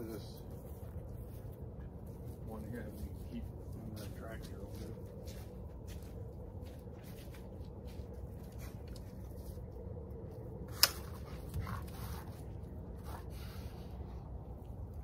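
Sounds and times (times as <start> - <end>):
low outdoor background: 0.0 - 15.0.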